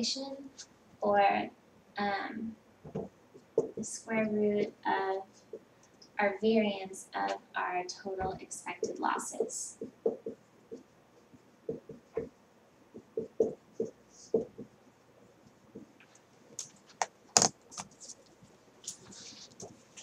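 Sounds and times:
marker writing on whiteboard: 2.8s - 3.9s, 8.3s - 18.3s.

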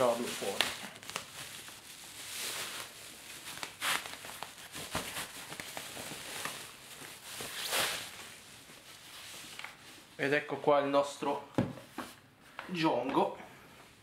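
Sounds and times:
plastic bag rustling: 0.0s - 10.2s.

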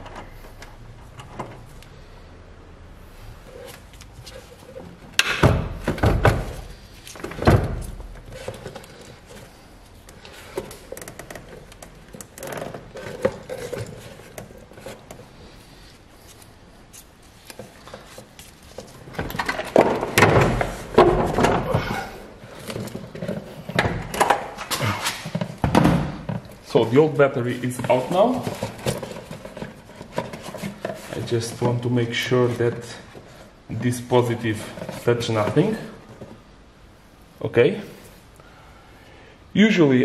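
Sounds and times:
knocking and scraping: 3.4s - 15.9s, 17.4s - 36.4s
soft handling sounds: 6.5s - 19.8s, 26.3s - 36.5s.

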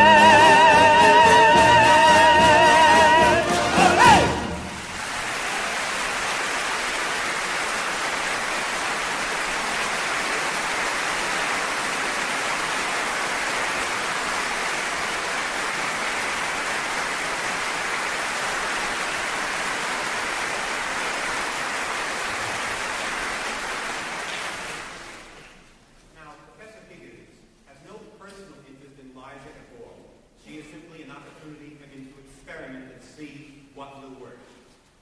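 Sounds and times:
audience applauding: 0.0s - 25.7s.

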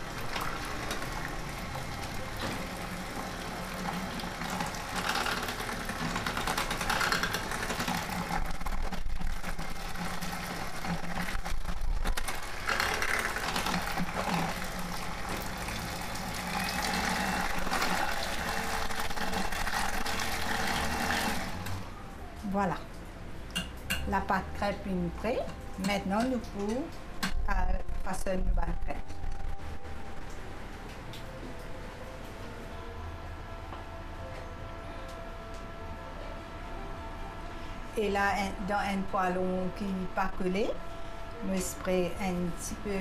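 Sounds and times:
electric hand mixer whirring: 0.0s - 22.0s.

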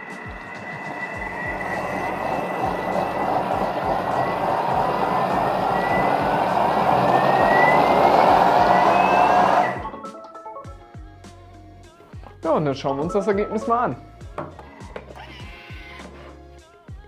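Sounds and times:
blender motor whirring: 0.0s - 10.0s, 14.9s - 16.3s.

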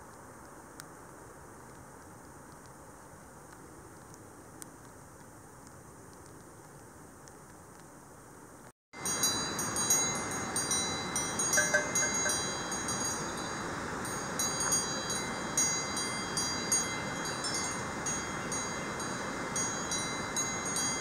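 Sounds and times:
steady background hiss: 0.0s - 21.0s
cowbells clanking: 9.0s - 21.0s.

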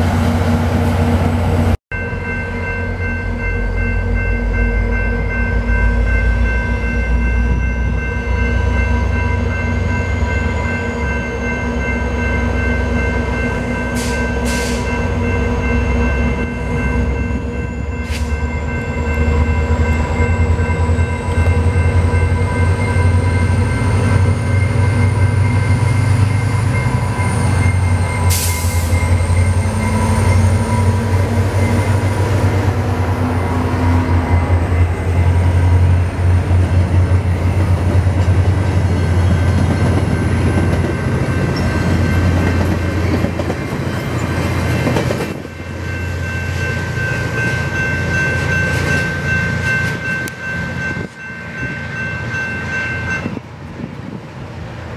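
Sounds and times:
diesel locomotive engine drone: 0.0s - 54.9s
train wheels rolling: 17.4s - 54.9s.

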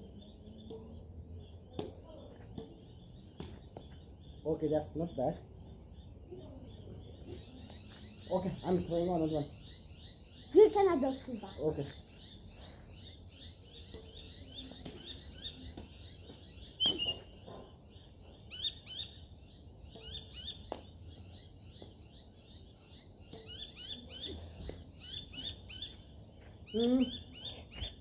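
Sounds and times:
birds chirping: 0.0s - 28.0s
rackets hitting shuttlecock: 1.7s - 3.9s, 13.8s - 16.0s.

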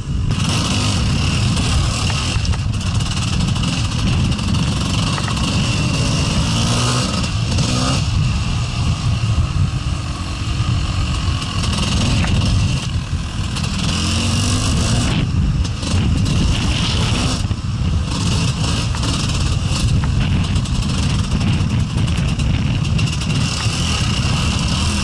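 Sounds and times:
motorcycle engine revving: 0.0s - 25.0s.

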